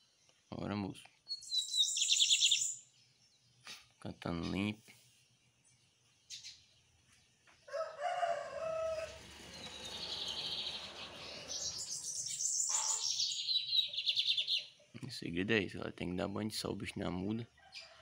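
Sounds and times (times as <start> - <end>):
bird singing high trills: 1.3 - 2.9, 8.9 - 14.8
rooster crowing: 7.7 - 12.0.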